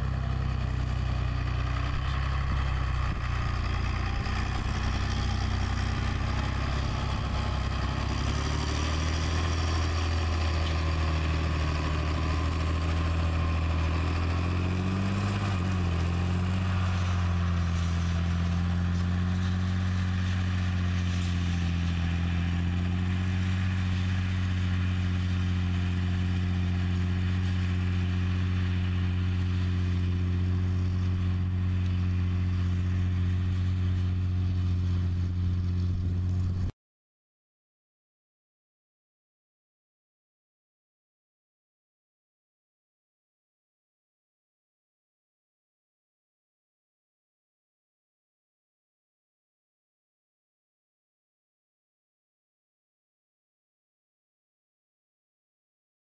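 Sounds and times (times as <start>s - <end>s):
ground and wind noise: 0.0s - 36.7s
tractor diesel engine running: 0.0s - 36.7s.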